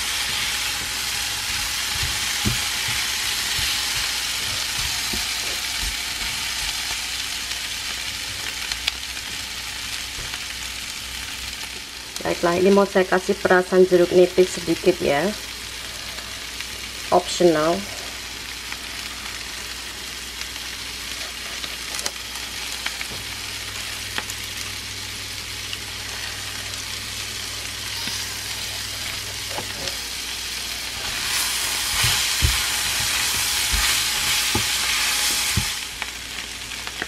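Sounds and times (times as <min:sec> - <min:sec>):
meat sizzling in a frying pan: 0:00.0 - 0:37.0
spatula knocking a pan: 0:00.2 - 0:06.9, 0:31.8 - 0:35.8.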